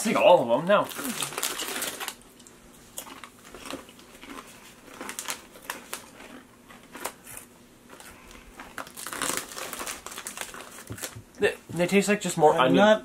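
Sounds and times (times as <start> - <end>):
crinkly rustling: 0.8 - 2.2, 3.4 - 11.2
potato chips being chewed: 0.8 - 11.2.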